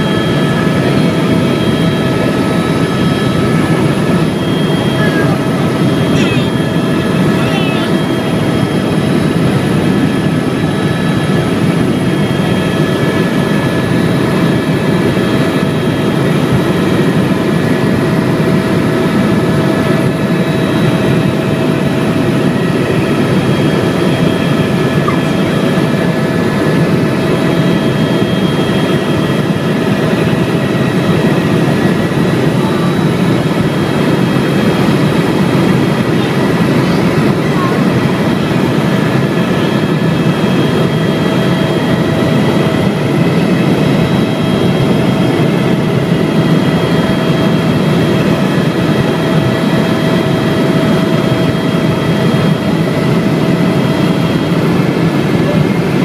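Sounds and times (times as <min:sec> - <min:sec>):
helicopter engine and rotor noise: 0:00.0 - 0:56.0
thin steady whine: 0:00.0 - 0:56.0.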